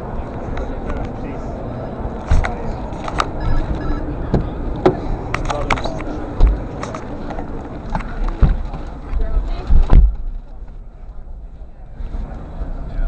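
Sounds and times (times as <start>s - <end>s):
crowd chatter: 0.0s - 13.0s
clicks and knocks in car interior: 4.3s - 7.0s, 7.9s - 10.4s
dull thump: 9.7s - 10.3s.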